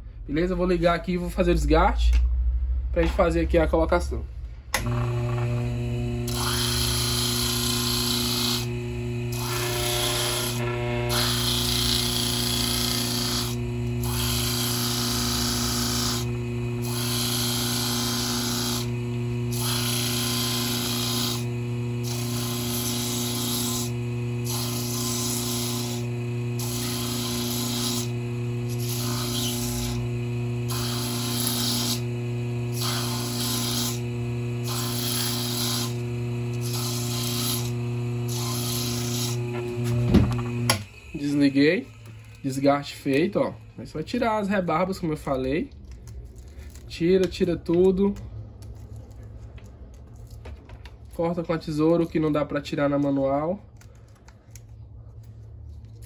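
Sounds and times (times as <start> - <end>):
disc sander motor humming: 4.8 - 43.6.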